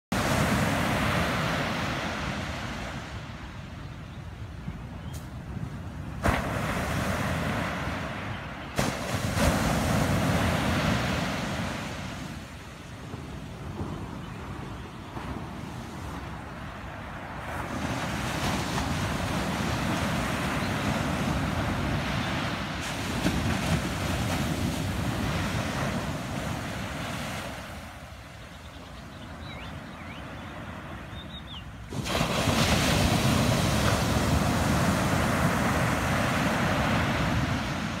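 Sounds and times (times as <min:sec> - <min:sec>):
surf washing up a beach: 0:00.1 - 0:38.0.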